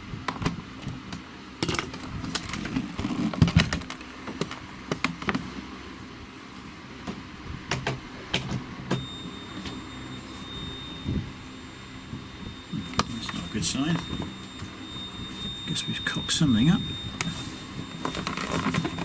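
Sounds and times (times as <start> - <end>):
faint high-pitched whine: 9.0 - 19.0.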